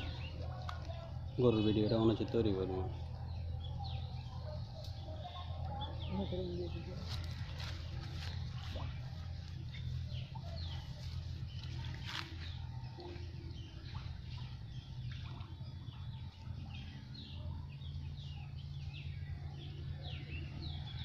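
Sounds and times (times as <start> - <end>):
birds chirping: 0.0 - 21.0
low hum: 0.0 - 21.0.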